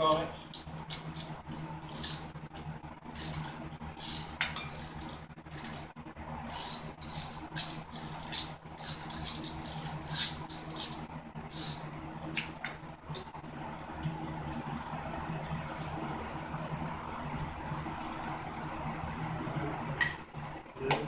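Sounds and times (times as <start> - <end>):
ratchet wrench clicking: 3.2 - 5.9, 6.5 - 11.8.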